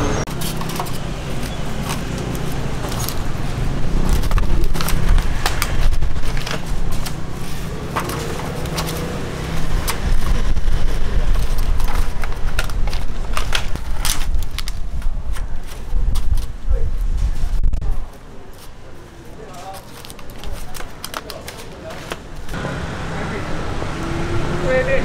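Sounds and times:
plastic food boxes crackling and clicking: 0:00.3 - 0:10.4, 0:11.0 - 0:16.5, 0:19.5 - 0:22.3.

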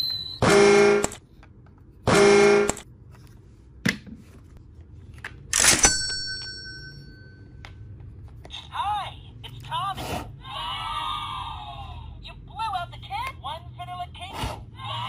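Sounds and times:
toy horn toots: 0:00.4 - 0:01.2, 0:02.1 - 0:02.8.

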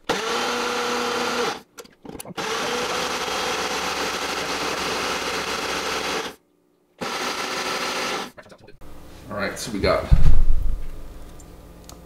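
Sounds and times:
blender motor whining: 0:00.1 - 0:01.6, 0:02.3 - 0:06.4, 0:07.0 - 0:08.3.

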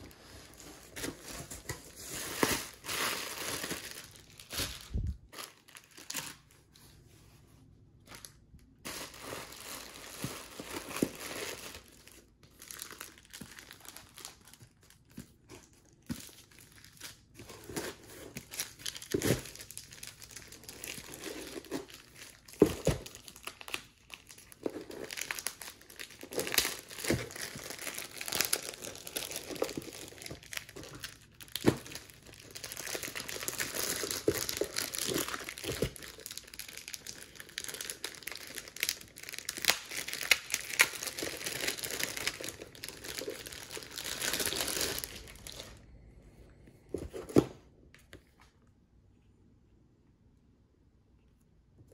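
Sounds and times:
plastic packing crinkling: 0:00.0 - 0:06.8, 0:08.1 - 0:45.8.

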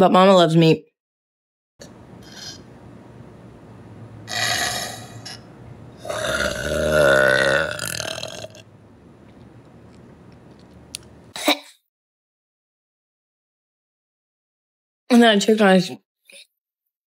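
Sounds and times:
woman burping: 0:04.3 - 0:08.6.

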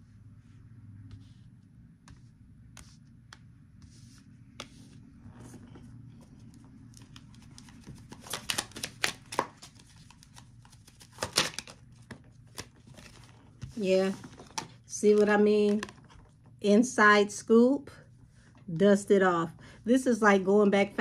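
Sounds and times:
low room hum: 0:00.0 - 0:21.0
cards being shuffled: 0:02.0 - 0:16.3.

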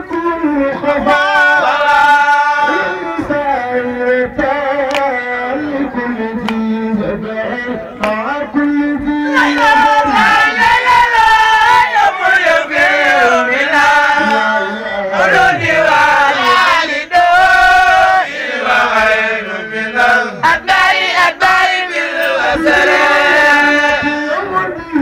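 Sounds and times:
man chanting into a microphone: 0:00.0 - 0:11.9, 0:13.1 - 0:16.6, 0:22.5 - 0:25.0.

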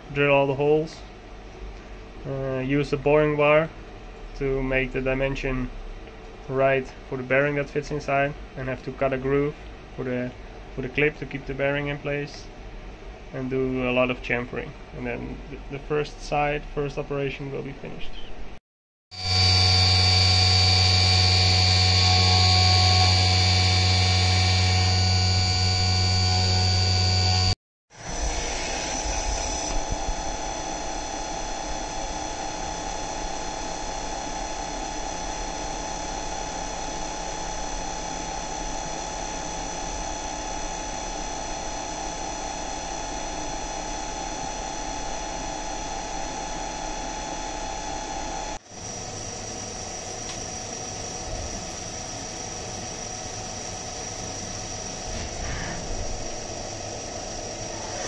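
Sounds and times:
milling machine cutting metal: 0:19.2 - 0:34.0, 0:48.8 - 0:58.0.

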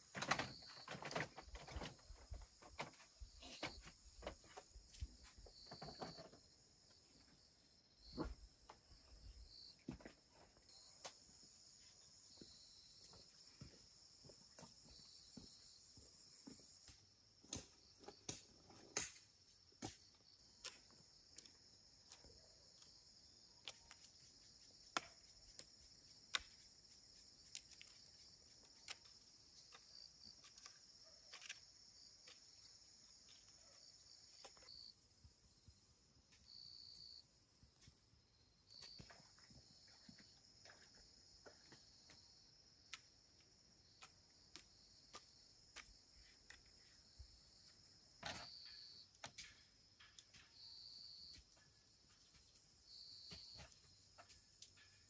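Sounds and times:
crickets chirring: 0:00.0 - 0:55.0.

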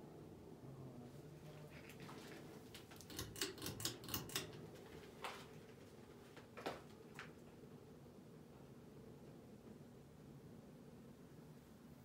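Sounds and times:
ceiling fan humming: 0:00.0 - 0:12.0.

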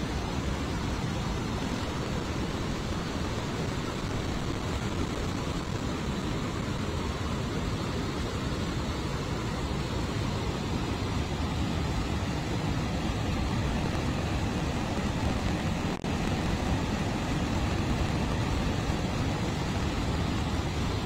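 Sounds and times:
floodwater roaring from spillway: 0:00.0 - 0:21.0.

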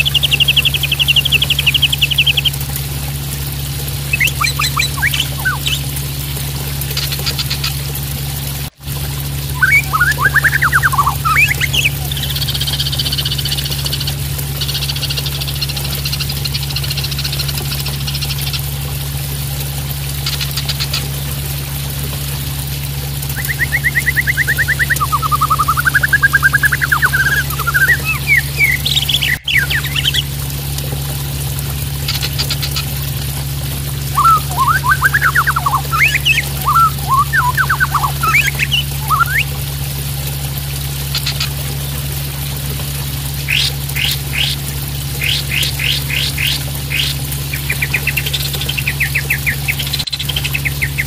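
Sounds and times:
bird singing trills: 0:00.0 - 0:02.6, 0:04.1 - 0:05.9, 0:09.6 - 0:13.6, 0:23.4 - 0:30.3, 0:34.1 - 0:39.5, 0:43.5 - 0:44.6, 0:45.2 - 0:51.0
running water splashing: 0:00.0 - 0:51.0
low hum: 0:21.2 - 0:41.0.

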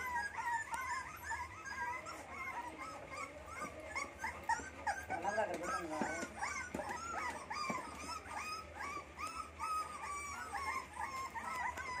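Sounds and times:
puppies whimpering: 0:00.0 - 0:12.0.

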